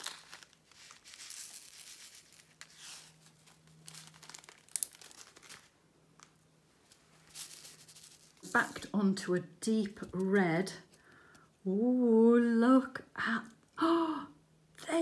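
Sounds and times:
plastic bag crinkling: 0.0 - 8.9.

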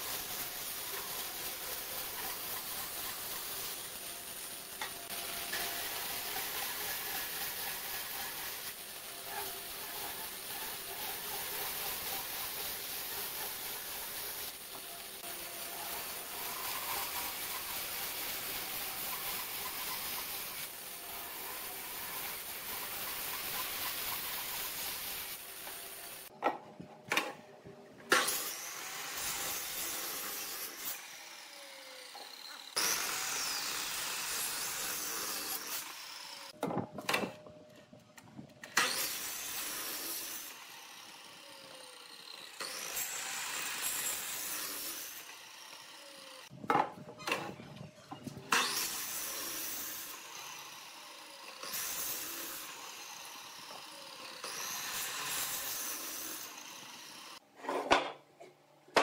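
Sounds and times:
mitre saw running: 0.0 - 26.3, 28.1 - 36.6, 38.7 - 46.6, 48.5 - 57.4
band saw cutting wood: 0.0 - 26.4, 28.1 - 37.4, 38.6 - 46.6, 47.2 - 57.4
knocks of wood being handled: 46.6 - 47.5.

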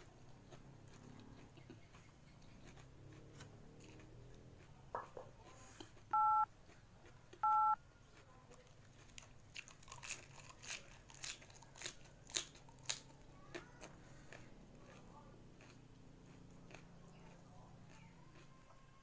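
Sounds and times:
chewing raw cabbage crunches: 0.0 - 4.9, 5.6 - 19.0
electronic two-tone beeps: 6.2 - 6.5, 7.4 - 7.8.

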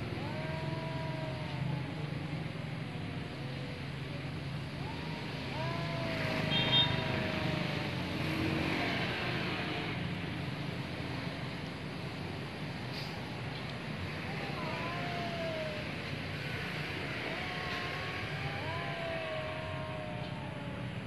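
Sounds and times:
cats caterwauling: 0.0 - 9.6, 14.0 - 21.0.

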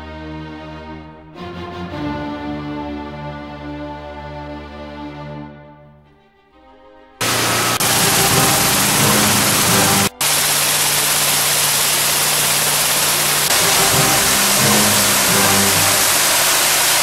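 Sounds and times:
low motor hum: 7.2 - 17.0
pressure washer water spray hissing: 7.2 - 17.0.

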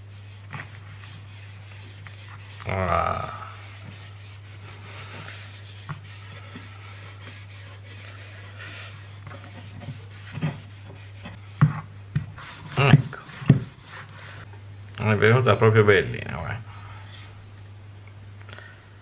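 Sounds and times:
cloth rubbing on axe head: 0.0 - 14.5, 16.9 - 17.4
steady low hum: 0.0 - 19.0.

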